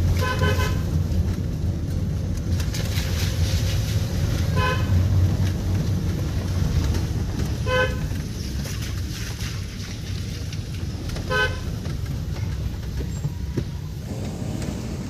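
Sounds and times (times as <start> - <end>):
car driving rumble: 0.0 - 15.0
car horn toots: 0.2 - 0.9, 7.6 - 8.1, 11.3 - 11.7.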